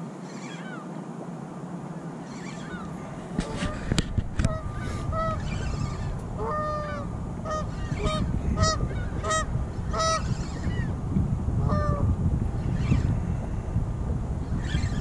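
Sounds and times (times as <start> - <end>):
geese honking: 2.2 - 10.9
steady low rumble: 2.7 - 15.0.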